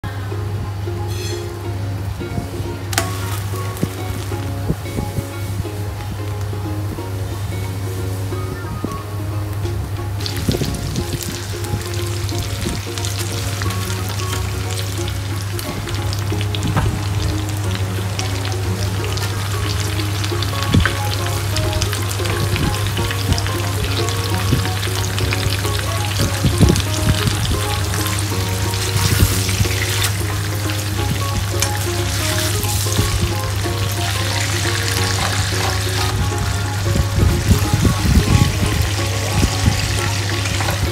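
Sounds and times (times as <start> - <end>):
steaks sizzling in a frying pan: 10.2 - 40.9.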